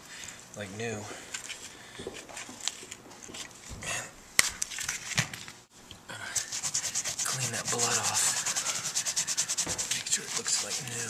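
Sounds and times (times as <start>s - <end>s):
cloth rubbing on plastic: 6.4s - 11.0s.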